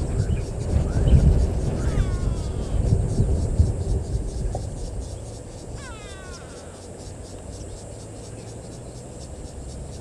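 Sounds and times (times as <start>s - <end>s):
insects chirring: 0.0s - 10.0s
bird call: 0.1s - 2.9s, 5.7s - 7.1s.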